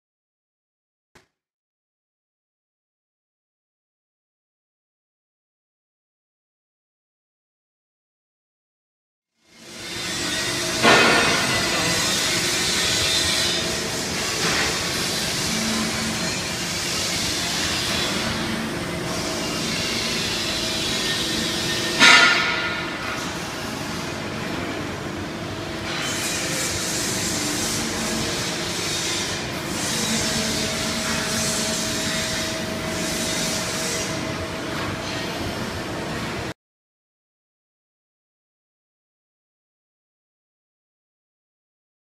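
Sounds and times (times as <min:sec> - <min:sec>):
workshop machinery humming: 0:09.5 - 0:36.5.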